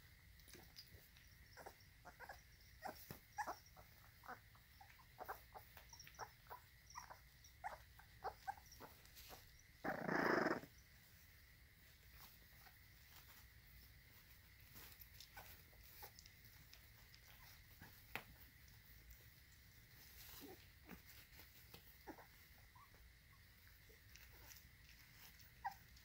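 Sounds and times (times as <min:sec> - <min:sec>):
crickets chirping: 0:00.0 - 0:26.0
puppy squeaks and grunts: 0:01.6 - 0:10.7, 0:25.6 - 0:25.9.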